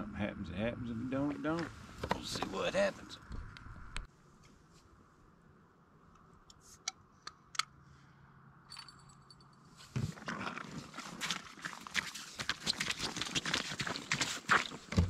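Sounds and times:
footsteps crunching on slush: 10.0 - 15.0.

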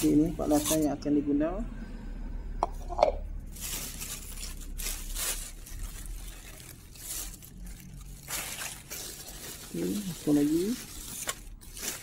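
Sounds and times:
plastic bag crinkling: 0.0 - 0.9, 3.4 - 12.0.

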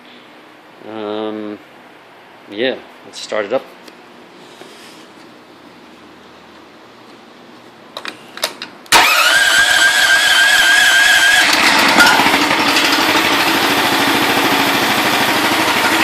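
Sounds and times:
small engine starting and running: 8.9 - 16.0.

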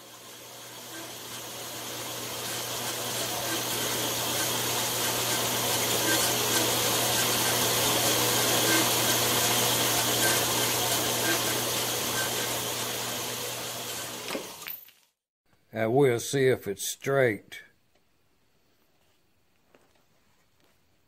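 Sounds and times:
band saw motor hum: 0.0 - 14.6
saw blade hissing through metal: 2.4 - 12.6.

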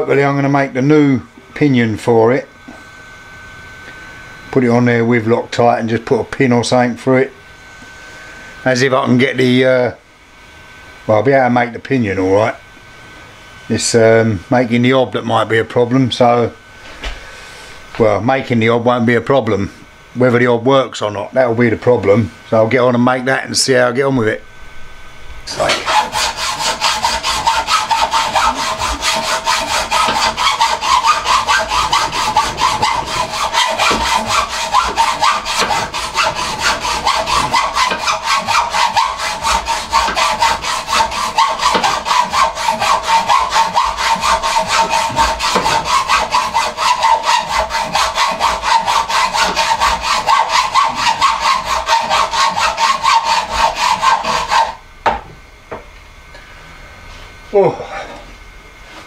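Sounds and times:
hacksaw cutting metal bar: 25.5 - 54.8.

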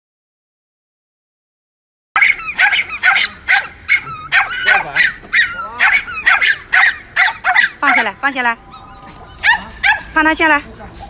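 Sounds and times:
small dog yapping: 2.2 - 10.2.

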